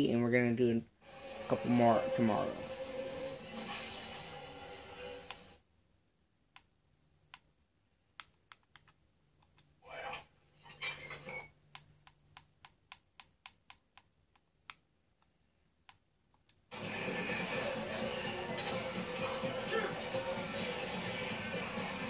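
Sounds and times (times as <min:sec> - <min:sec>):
tv music and voices: 0:00.0 - 0:05.6, 0:09.8 - 0:11.5, 0:16.7 - 0:22.0.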